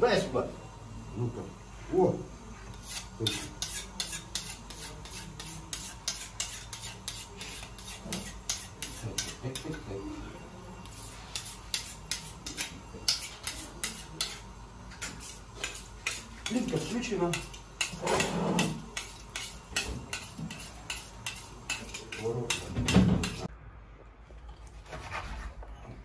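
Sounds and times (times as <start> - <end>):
knife scraping against knife blade: 2.7 - 9.9, 10.8 - 23.5.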